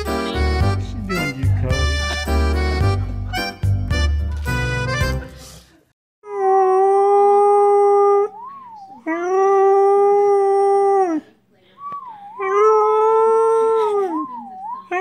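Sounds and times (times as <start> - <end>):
puppy howling: 12.2 - 15.0.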